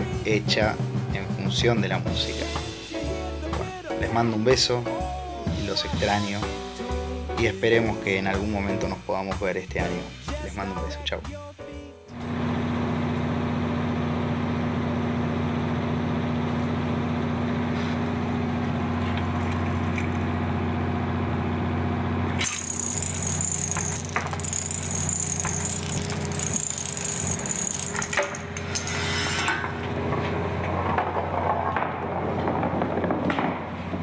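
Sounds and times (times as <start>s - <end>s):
dominoes clicking and clattering: 22.4s - 28.6s
toy truck rolling: 22.4s - 29.1s.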